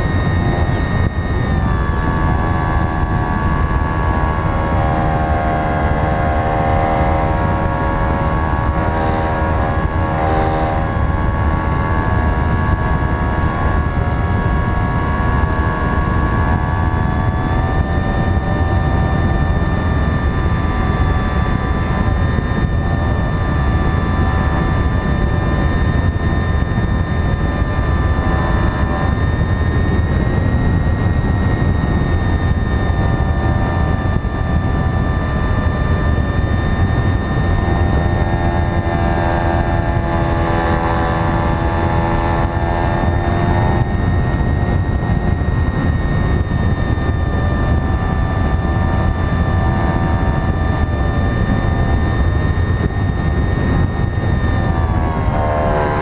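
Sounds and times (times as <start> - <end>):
high whine: 0.0 - 56.0
model aircraft motors running: 0.0 - 56.0
wind noise: 0.0 - 56.0.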